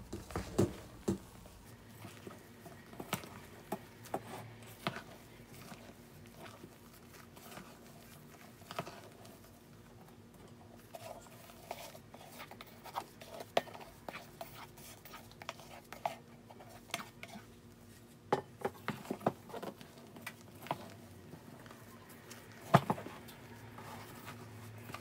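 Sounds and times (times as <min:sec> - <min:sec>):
utensil scraping through batter: 0:10.8 - 0:18.0.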